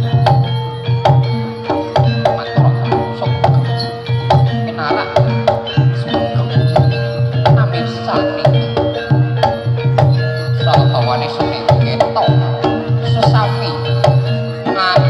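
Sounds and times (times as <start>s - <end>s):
gamelan music: 0.0s - 15.0s.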